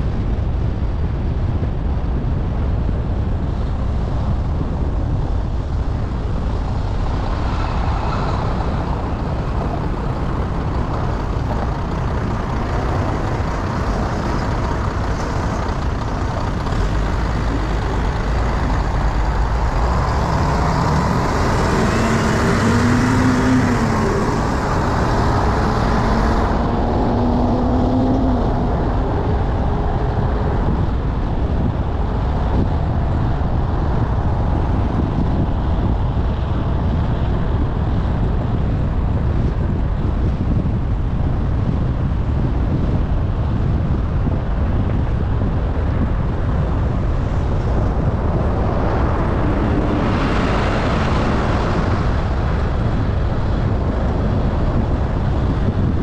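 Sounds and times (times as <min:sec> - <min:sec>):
road and wind noise: 0:00.0 - 0:56.0
car engine rising and falling: 0:05.2 - 0:36.8.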